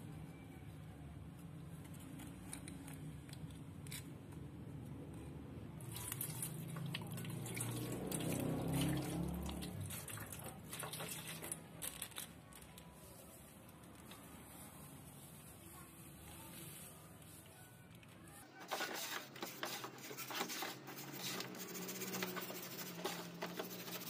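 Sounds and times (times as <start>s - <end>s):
water splashing onto plastic: 5.8s - 11.7s
water dripping: 5.9s - 11.6s.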